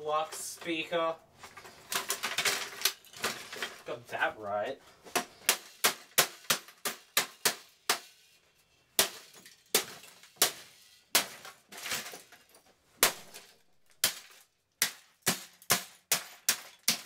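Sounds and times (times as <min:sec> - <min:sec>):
plastic pieces clattering: 0:01.4 - 0:03.9, 0:11.4 - 0:14.6.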